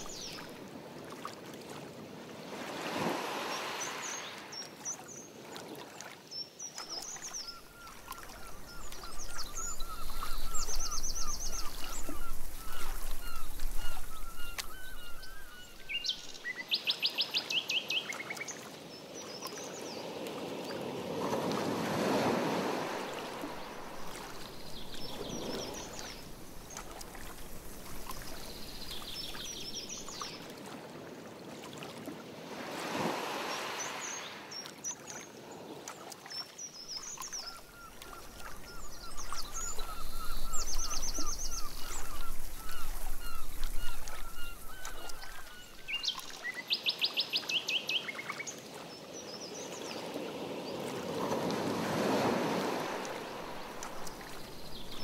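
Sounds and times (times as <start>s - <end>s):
paddle splashing in water: 0.0s - 6.2s, 6.8s - 16.5s, 20.2s - 30.9s, 31.5s - 35.1s, 35.8s - 46.5s, 50.8s - 55.0s
songbirds singing: 6.3s - 20.0s, 23.0s - 30.5s, 36.3s - 48.6s, 52.6s - 55.0s.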